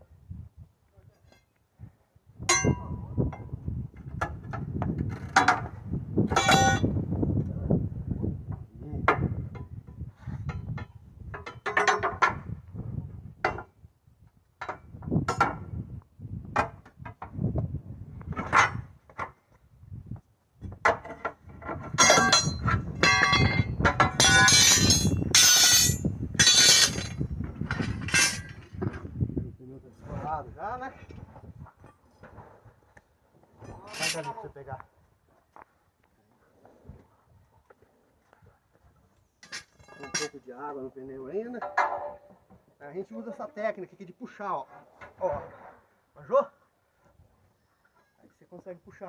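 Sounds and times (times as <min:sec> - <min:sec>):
metal tools clanking on steel rim: 0:02.5 - 0:03.5, 0:06.3 - 0:06.8, 0:09.1 - 0:12.4, 0:21.8 - 0:28.8, 0:33.6 - 0:34.5, 0:39.4 - 0:40.5, 0:41.4 - 0:42.3.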